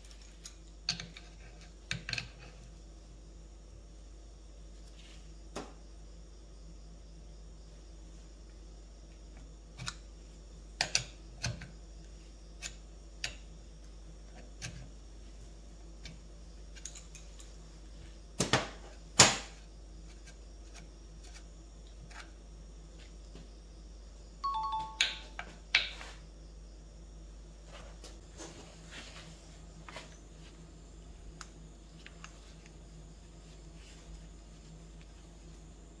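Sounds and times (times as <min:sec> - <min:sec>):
brief ringing tone: 0:24.4 - 0:25.4.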